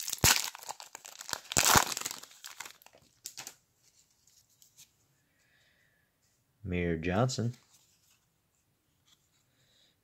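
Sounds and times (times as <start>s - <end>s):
plastic wrapper crinkling and tearing: 0.0s - 3.6s.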